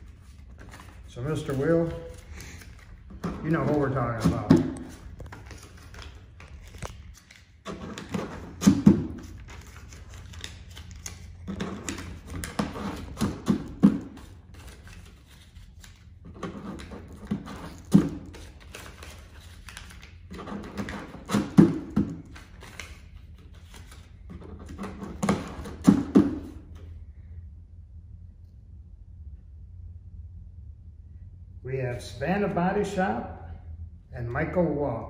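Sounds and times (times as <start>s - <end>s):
banknotes rustling and crinkling: 0.0s - 26.8s.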